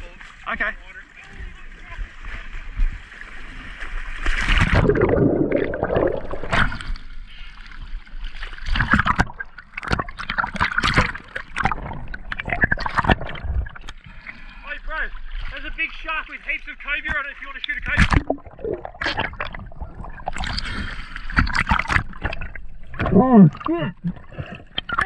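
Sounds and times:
knocks and sloshes: 0.0s - 25.0s
water splashing and gurgling: 0.0s - 25.0s.

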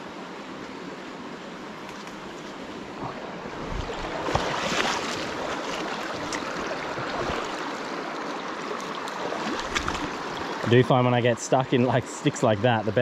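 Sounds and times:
river water rushing over rocks: 0.0s - 11.8s
water splashing: 2.0s - 10.8s.

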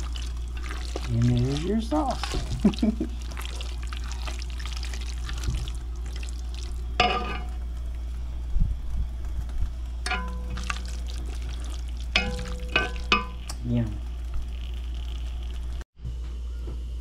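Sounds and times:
stir-fry sizzling in a pan: 0.0s - 7.6s, 10.1s - 13.9s
low hum: 0.0s - 17.0s.

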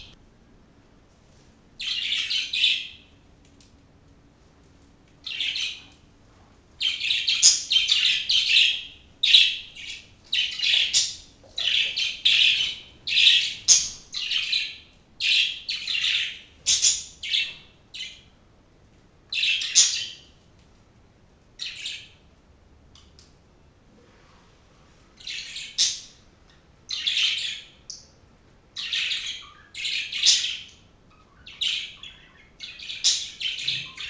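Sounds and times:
budgerigars chirping and chattering: 1.8s - 3.0s, 5.2s - 6.0s, 6.8s - 18.2s, 19.3s - 20.2s, 26.9s - 27.8s, 28.8s - 34.0s.

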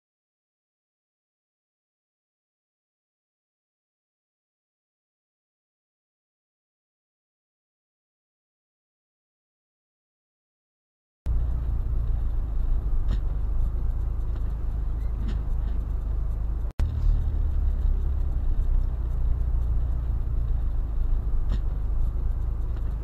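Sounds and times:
car cabin road rumble: 11.3s - 23.0s.

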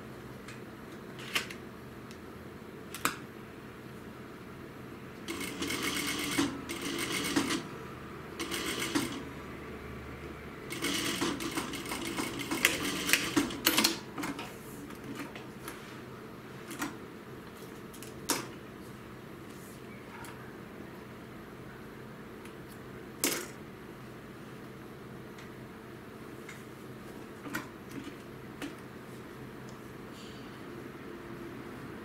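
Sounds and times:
sewing machine stitching: 5.3s - 7.7s, 8.4s - 9.2s, 10.7s - 14.4s.

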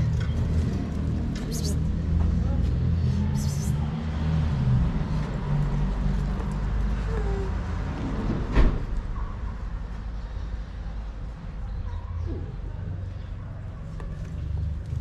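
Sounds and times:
vehicle engine rumbling: 0.0s - 9.0s.

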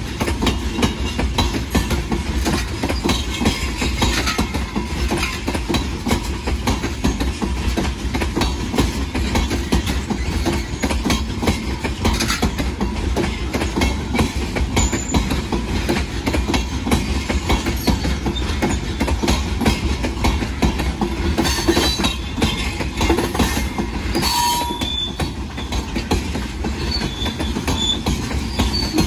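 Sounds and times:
train rumble: 0.0s - 29.0s
wheels clattering on rail: 0.0s - 29.0s
high wheel squeals: 24.1s - 26.0s, 26.8s - 29.0s.

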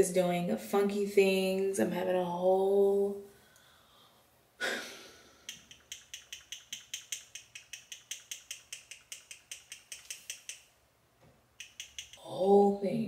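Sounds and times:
fast mechanical clicks: 5.5s - 10.6s.

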